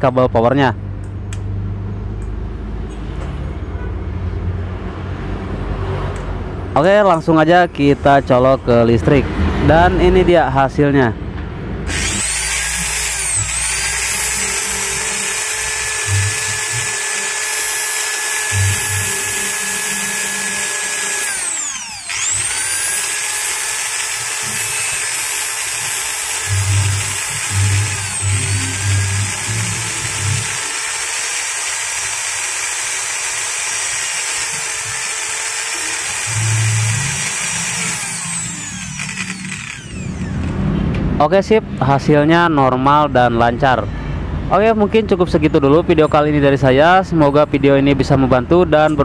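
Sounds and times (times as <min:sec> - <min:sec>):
angle grinder whining: 0:11.8 - 0:40.7.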